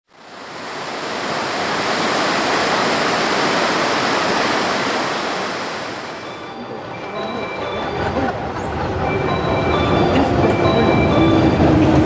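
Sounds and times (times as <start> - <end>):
river rapids rushing: 0.1 - 7.3.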